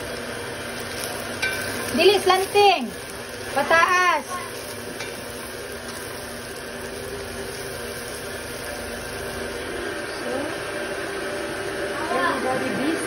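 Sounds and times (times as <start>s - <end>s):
meat sizzling in a wok: 0.0s - 11.9s.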